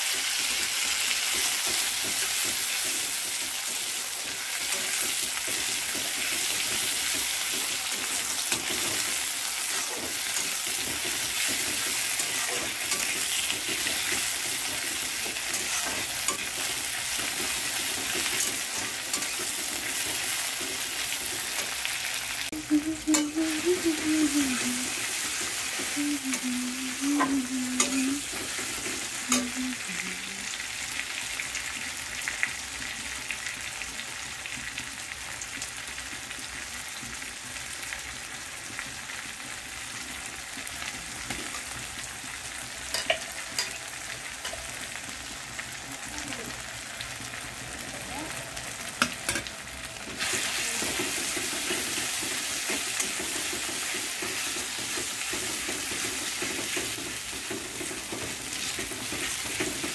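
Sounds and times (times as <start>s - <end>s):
vegetables sizzling in hot oil: 0.0s - 59.9s.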